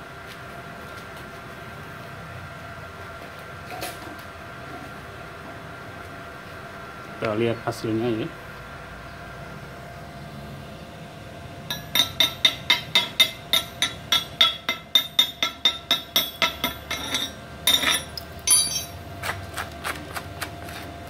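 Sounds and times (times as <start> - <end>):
hammer striking metal: 11.7 - 19.0.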